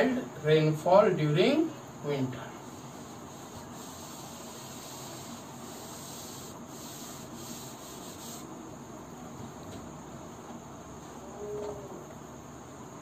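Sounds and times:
high-pitched hiss: 0:00.0 - 0:10.4.

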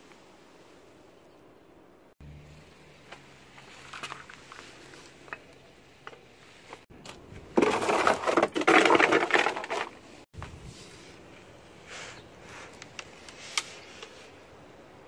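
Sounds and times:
rough scraping on ground: 0:02.9 - 0:14.5.

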